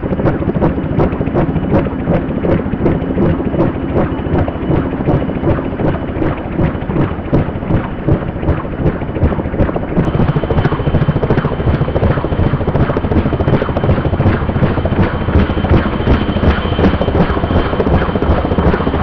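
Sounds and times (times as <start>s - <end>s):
helicopter rotor beating: 0.0s - 19.0s
thin steady whine: 0.0s - 19.0s
turbine engine rush: 0.0s - 19.0s.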